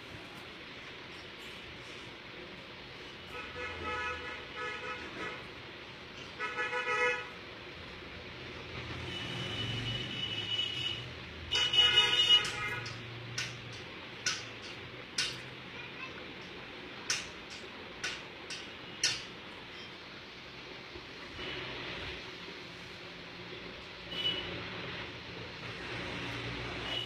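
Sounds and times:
vehicle horns honking: 9.0 - 13.0, 24.1 - 24.6.

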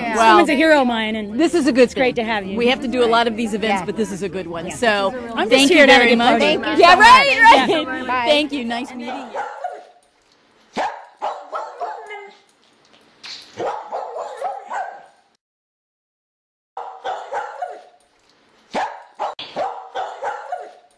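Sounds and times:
dog barking and yipping: 9.0 - 10.1, 10.7 - 12.5, 13.5 - 15.3, 16.8 - 18.0, 18.7 - 20.9.

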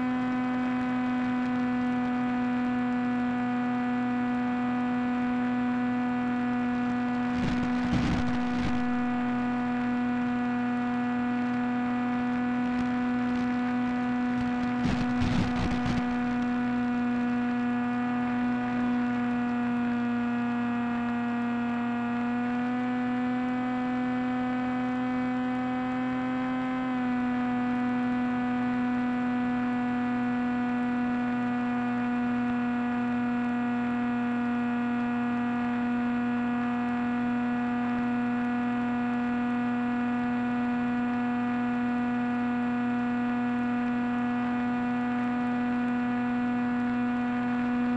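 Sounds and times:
buzzing hum: 0.0 - 47.9
crackle bursts: 6.8 - 10.6, 11.4 - 19.7.

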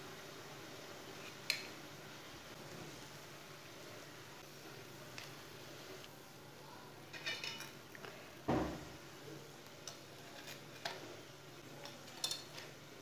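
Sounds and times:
tongs clinking on glass plate: 7.1 - 7.8, 11.8 - 12.7.

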